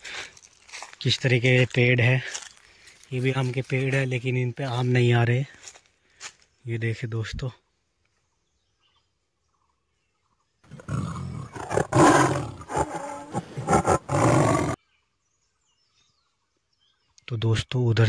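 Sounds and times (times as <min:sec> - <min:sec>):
tiger roaring: 0:10.7 - 0:14.8.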